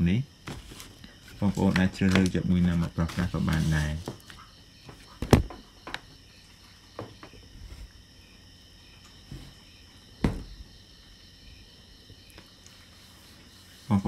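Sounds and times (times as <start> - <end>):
crickets chirping: 0.0 - 14.0
packets knocking on table: 5.2 - 6.0, 10.2 - 10.5.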